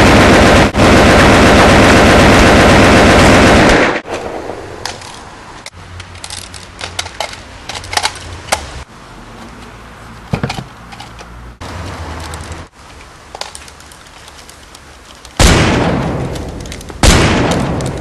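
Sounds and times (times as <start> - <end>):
automatic gunfire: 0.0 - 4.0, 17.0 - 17.8.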